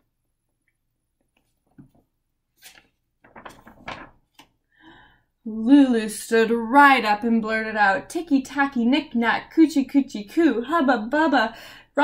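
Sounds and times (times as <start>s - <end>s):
paper pages rustling: 1.3s - 4.6s.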